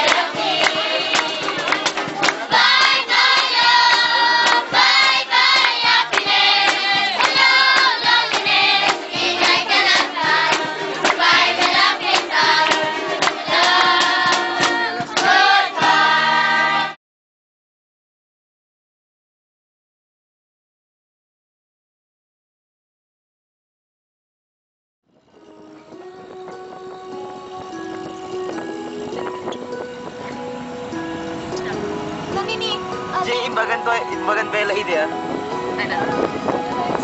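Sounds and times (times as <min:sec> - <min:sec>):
dance music with group singing: 0:00.0 - 0:17.0.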